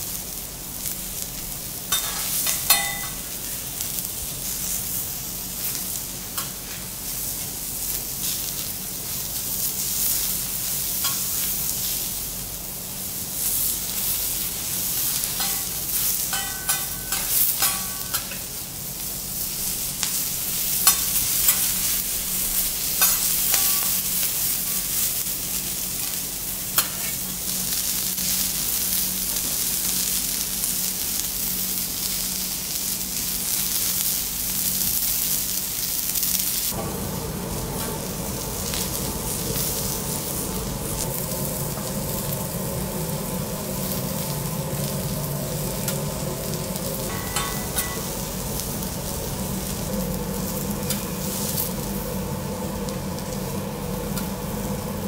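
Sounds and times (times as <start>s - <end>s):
vegetables sizzling on a griddle: 0.0s - 55.0s
metal spatulas clinking and scraping: 1.9s - 3.2s, 15.4s - 18.4s.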